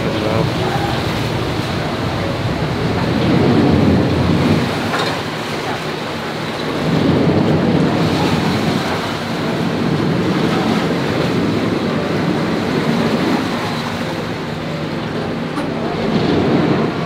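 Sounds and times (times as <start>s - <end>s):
low engine hum: 0.0s - 17.0s
rush of water: 0.0s - 17.0s
wind noise on microphone: 0.0s - 17.0s.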